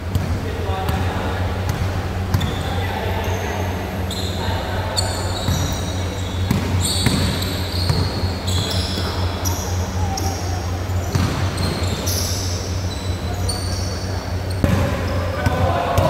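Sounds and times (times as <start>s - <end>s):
steady low hum: 0.0s - 16.0s
basketball bouncing: 0.1s - 1.1s, 1.7s - 2.7s, 5.0s - 9.1s, 11.0s - 12.2s, 14.5s - 16.0s
sneakers squeaking on floor: 0.9s - 16.0s.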